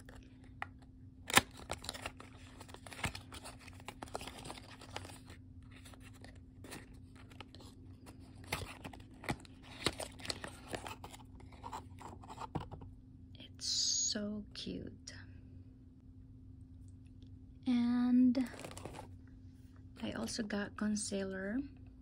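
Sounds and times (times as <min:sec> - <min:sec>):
cardboard rustling and scraping: 0:01.7 - 0:12.9, 0:18.4 - 0:19.1.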